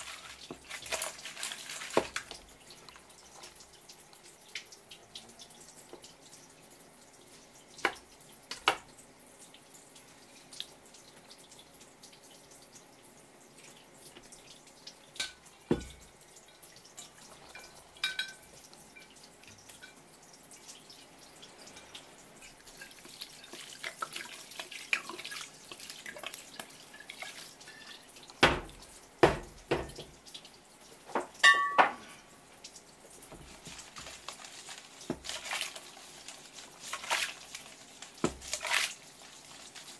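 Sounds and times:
drips and small clicks: 1.3s - 31.8s.

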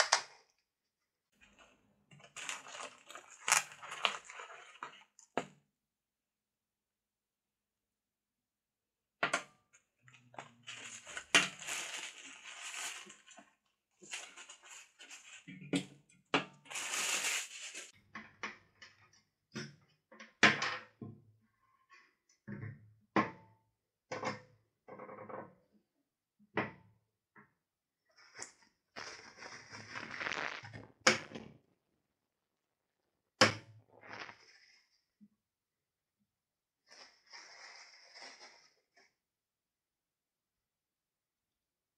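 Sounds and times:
plastic bags crinkling: 1.4s - 5.0s, 10.3s - 15.5s, 16.6s - 17.9s, 29.0s - 31.5s.

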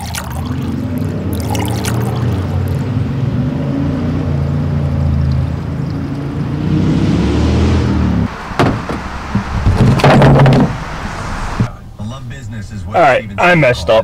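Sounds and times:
low engine hum: 0.4s - 12.8s
sharp knock: 8.4s - 11.0s.

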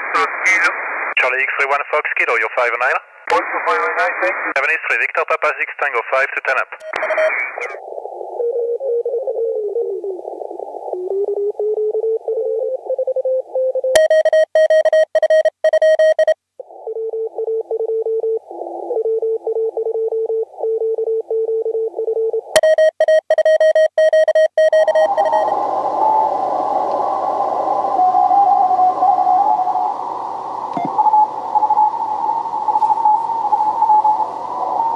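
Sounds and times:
radio hiss and band noise: 0.0s - 11.6s, 24.9s - 34.9s
morse code tones over radio: 6.4s - 7.8s, 11.0s - 25.5s.

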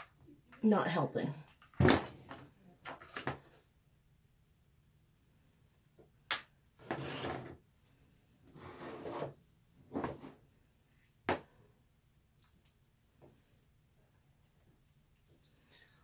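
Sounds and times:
tools scraping on wood: 6.8s - 7.6s.

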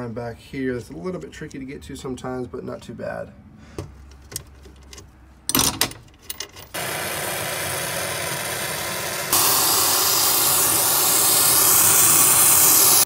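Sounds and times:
torch flame hissing: 6.8s - 13.0s.

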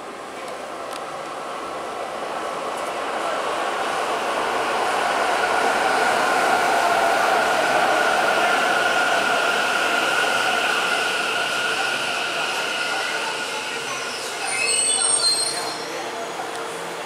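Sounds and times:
steady train whine: 0.0s - 17.0s.

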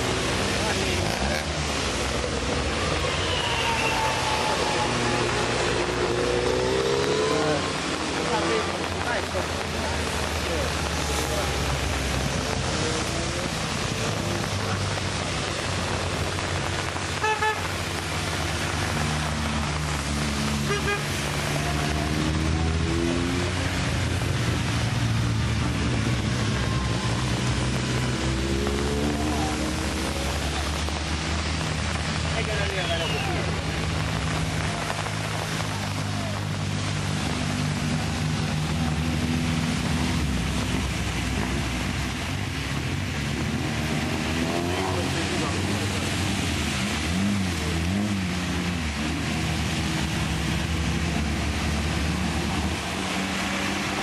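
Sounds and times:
rally car engines: 0.0s - 17.0s, 18.0s - 54.0s
rain: 0.0s - 54.0s
tyres hissing on wet asphalt: 0.0s - 54.0s
car horn toots: 17.2s - 17.6s, 20.7s - 21.1s.

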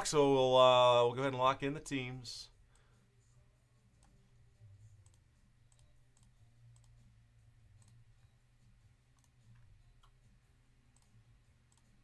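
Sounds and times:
low steady hum: 0.0s - 12.0s
faint irregular clicks: 7.7s - 8.0s.

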